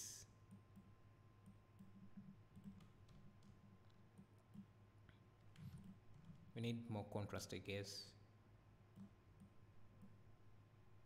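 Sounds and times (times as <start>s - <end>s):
low steady hum: 0.0s - 11.0s
computer mouse clicks: 0.5s - 6.4s.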